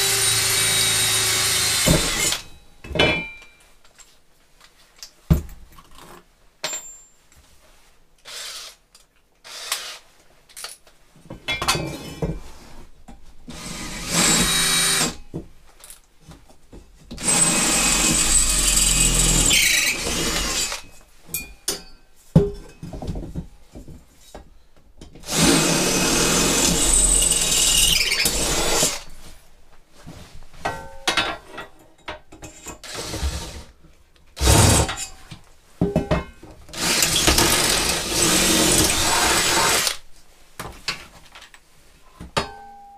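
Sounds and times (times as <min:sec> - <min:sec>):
cordless drill boring into steel: 0:00.0 - 0:02.4, 0:08.3 - 0:08.8, 0:09.5 - 0:10.0, 0:13.6 - 0:15.2, 0:17.2 - 0:20.8, 0:25.2 - 0:29.0, 0:36.8 - 0:40.0.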